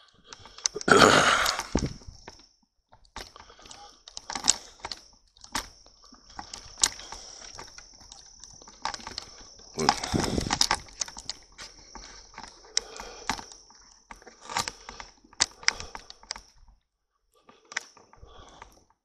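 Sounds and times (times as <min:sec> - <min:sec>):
high-pitched insect trill: 0:00.0 - 0:16.6
footsteps: 0:05.6 - 0:15.1.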